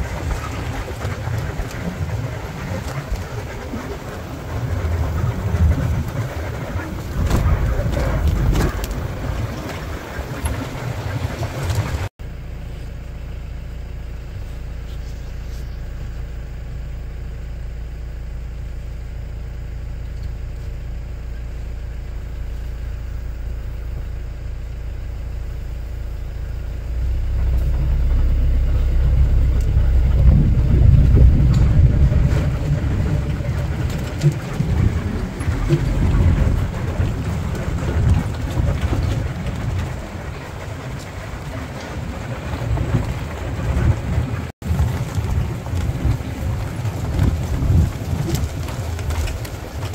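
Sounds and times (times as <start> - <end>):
jeep engine running: 0.0 - 49.9.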